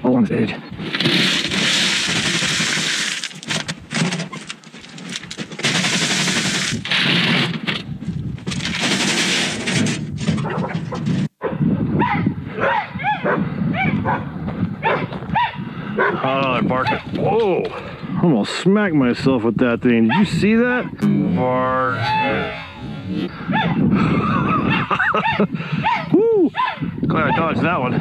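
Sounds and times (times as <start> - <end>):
gravel pouring from wheelbarrow: 1.1 - 3.5
dogs barking: 10.4 - 17.1, 20.0 - 21.0, 23.3 - 23.8, 24.5 - 27.6.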